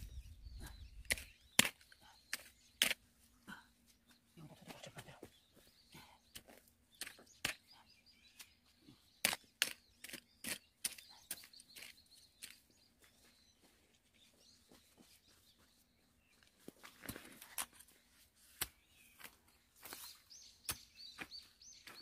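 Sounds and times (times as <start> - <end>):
hoe chopping and scraping soil: 1.0 - 3.1, 8.4 - 12.7.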